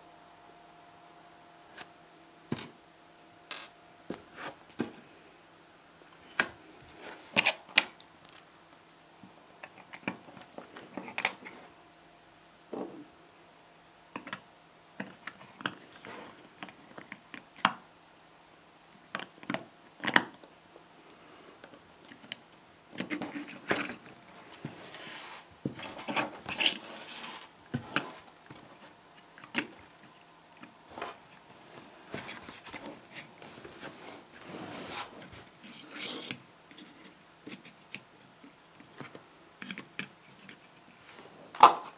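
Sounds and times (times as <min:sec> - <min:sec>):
rubbing and scraping: 0:30.9 - 0:37.8.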